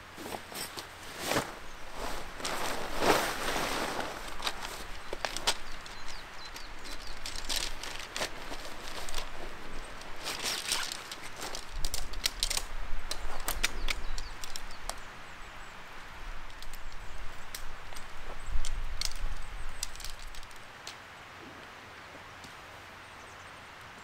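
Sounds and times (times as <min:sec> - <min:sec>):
nylon rustling: 0:00.0 - 0:14.9.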